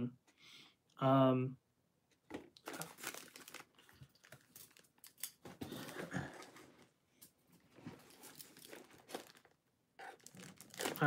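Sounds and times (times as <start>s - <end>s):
packaging rustling and crinkling: 2.3s - 6.9s, 7.7s - 11.0s.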